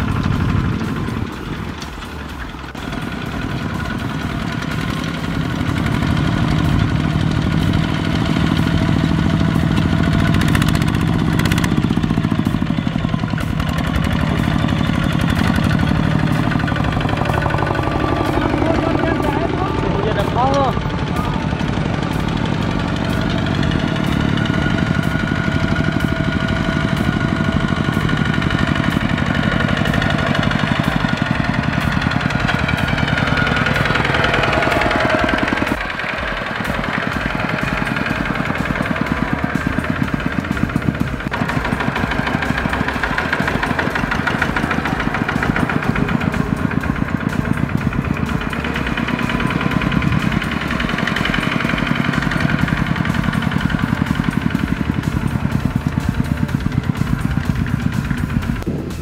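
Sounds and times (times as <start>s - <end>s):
diesel tractor engine chugging: 0.0s - 59.0s.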